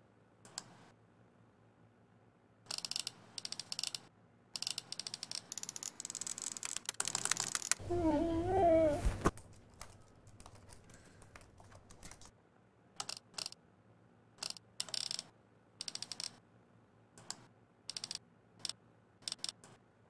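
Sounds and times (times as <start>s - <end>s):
laptop keyboard typing: 2.7s - 4.0s, 4.6s - 7.8s, 9.2s - 12.3s, 15.8s - 16.4s, 17.9s - 18.2s
woman whining: 7.8s - 9.3s.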